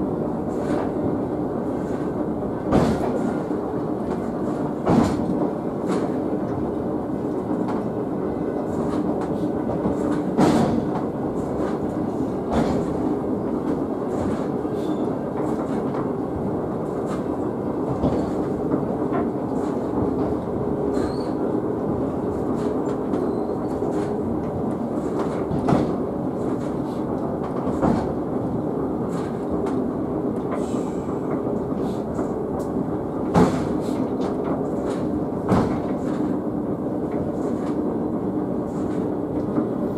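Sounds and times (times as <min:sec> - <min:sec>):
cable car rumble and hum: 0:00.0 - 0:39.9
clunk: 0:04.8 - 0:05.3, 0:10.0 - 0:11.0, 0:12.5 - 0:13.0, 0:25.2 - 0:26.0, 0:33.3 - 0:33.9, 0:34.8 - 0:36.2.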